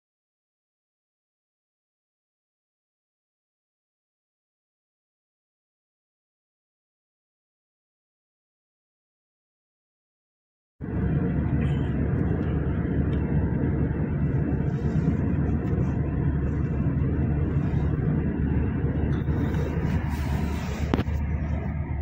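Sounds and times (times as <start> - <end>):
car road and engine rumble: 10.8 - 22.0.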